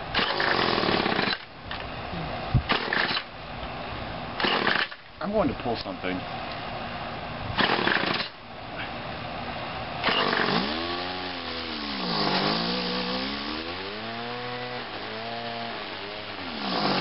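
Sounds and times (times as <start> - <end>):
string trimmer engine revving: 0.2 - 1.4, 10.0 - 17.0.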